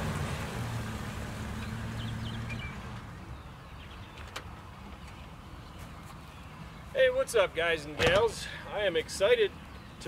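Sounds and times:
bird chirps: 1.6s - 7.0s.

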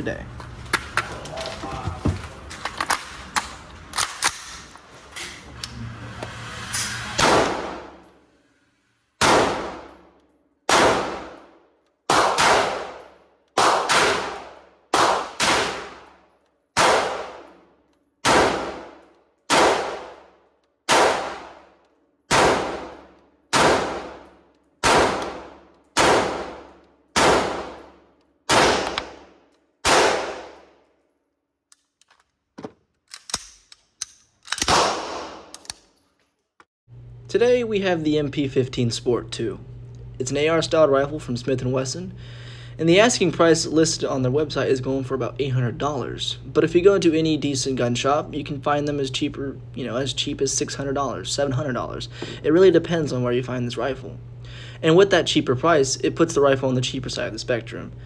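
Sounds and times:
rifle shots echoing: 7.2s - 8.0s, 9.2s - 10.1s, 10.7s - 16.2s, 16.8s - 17.6s, 18.2s - 21.7s, 22.3s - 30.8s.

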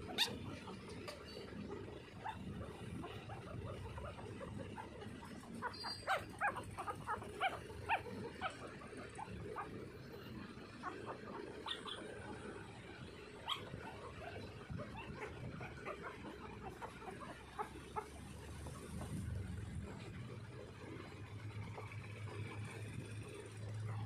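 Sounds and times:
puppies squeaking and whimpering: 0.0s - 20.0s.

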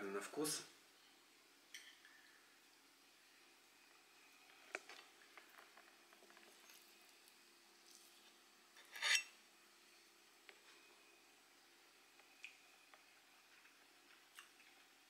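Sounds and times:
fork scraping plate: 8.8s - 9.3s.

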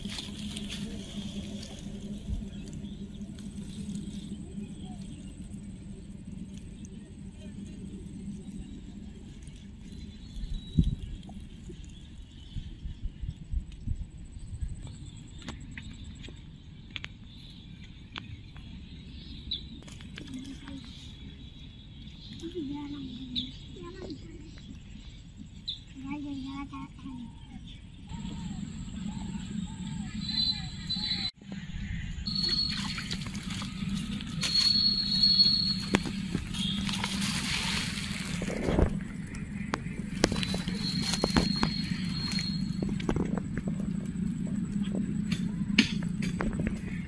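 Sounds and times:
low rumble: 0.0s - 25.9s, 27.0s - 47.0s
faint high chirps and clicks: 6.4s - 12.7s, 14.8s - 18.8s, 22.0s - 25.8s, 32.3s - 38.1s, 39.3s - 43.2s
water splashing and sloshing: 32.3s - 44.0s.

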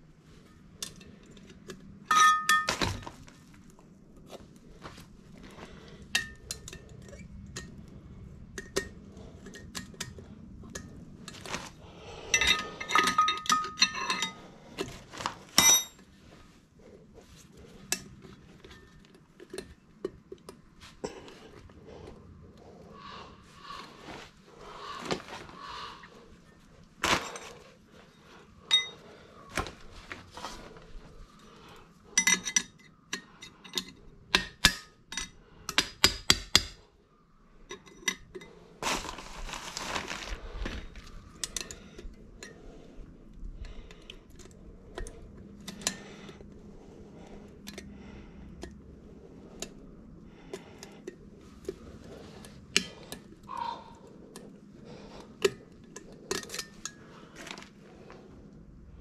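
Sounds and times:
metal tools clinking: 0.4s - 3.1s, 12.2s - 16.1s, 28.6s - 29.1s, 32.1s - 34.1s.

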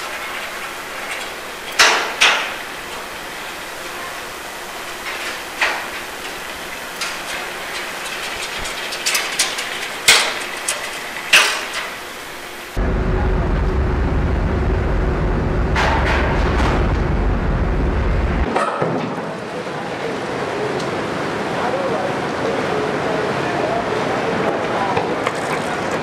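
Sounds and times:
loud steady low rumble: 12.7s - 18.5s.

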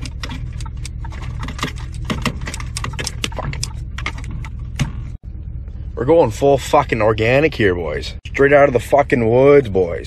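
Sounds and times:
rapid clicks and ticks: 0.0s - 4.2s
truck cab drone: 0.0s - 10.0s.

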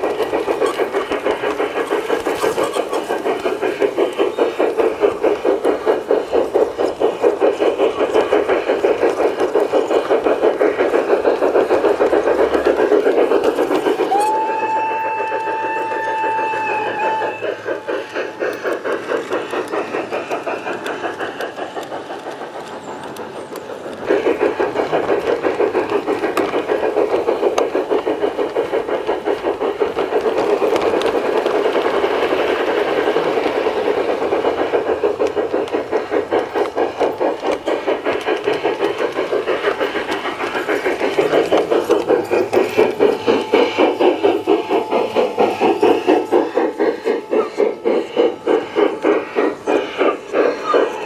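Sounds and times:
model train rhythmic running beat: 0.0s - 51.0s
model train whistle: 14.1s - 17.6s.

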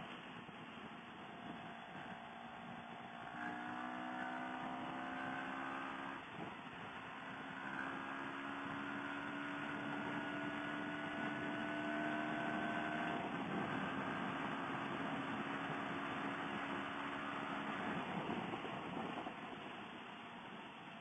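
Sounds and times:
motorcycle engine cruising: 0.0s - 21.0s
wind rush: 12.7s - 21.0s.

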